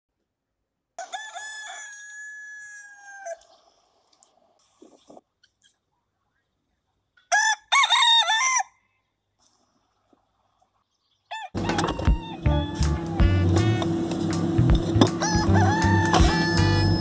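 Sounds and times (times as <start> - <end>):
rooster crowing: 1.0 - 3.5, 7.3 - 8.9, 11.3 - 13.8, 15.1 - 17.0
music: 11.7 - 17.0.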